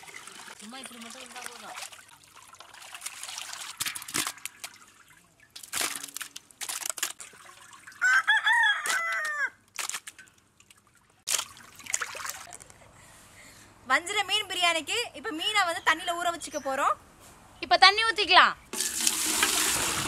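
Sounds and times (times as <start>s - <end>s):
water splashing and dripping: 0.0s - 8.1s, 8.9s - 12.6s, 18.8s - 20.0s
rooster crowing: 8.0s - 9.6s.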